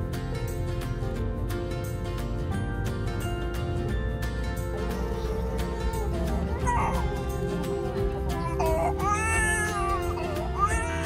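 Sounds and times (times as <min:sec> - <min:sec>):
background music: 0:00.0 - 0:11.0
infant crying: 0:04.8 - 0:11.0.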